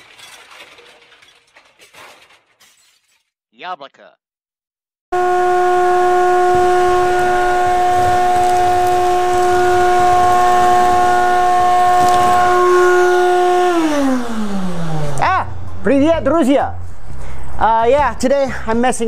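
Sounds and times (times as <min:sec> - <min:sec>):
vacuum cleaner whine: 0:05.2 - 0:15.2
motor spinning down: 0:06.6 - 0:15.7.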